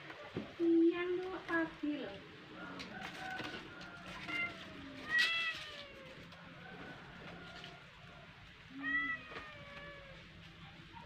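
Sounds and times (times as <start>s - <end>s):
cats meowing: 4.1s - 6.5s, 8.6s - 10.6s.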